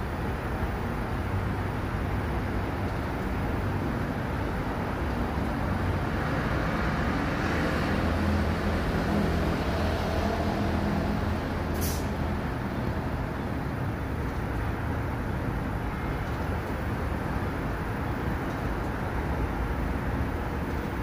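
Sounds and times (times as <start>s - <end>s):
subway train equipment hum: 0.0s - 21.0s
air hiss: 11.7s - 12.2s.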